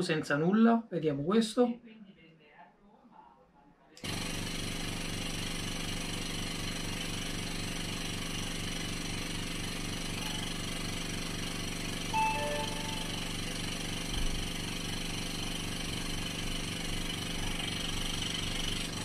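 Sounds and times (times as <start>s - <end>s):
air compressor motor humming: 4.0s - 19.0s.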